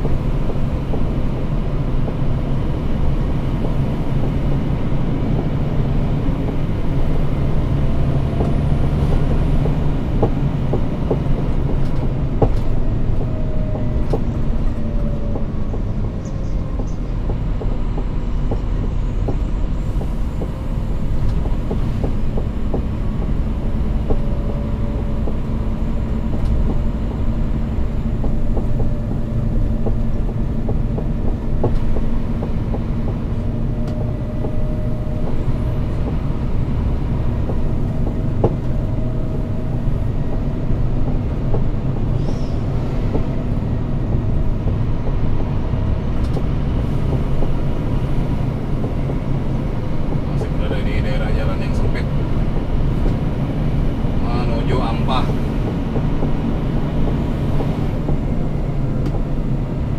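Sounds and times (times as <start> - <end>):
road noise: 0.0 - 59.9
truck engine drone: 0.0 - 59.9.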